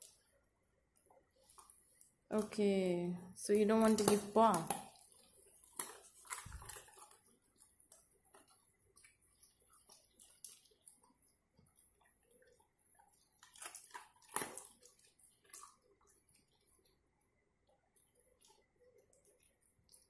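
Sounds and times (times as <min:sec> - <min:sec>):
dog chewing and clicking: 0:03.9 - 0:16.9.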